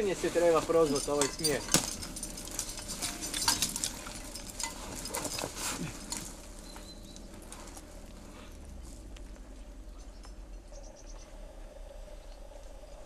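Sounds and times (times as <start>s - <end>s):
climber clicks knocks and rustles: 0.7s - 6.6s.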